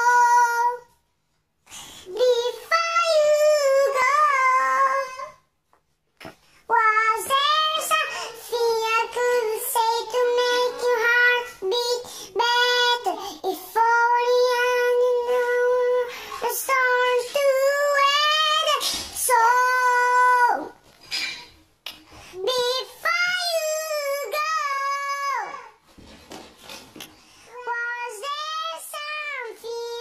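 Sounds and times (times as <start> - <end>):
high-pitched voice singing wordless notes: 2.1 - 5.4, 6.7 - 20.8, 22.4 - 25.8, 27.5 - 30.0.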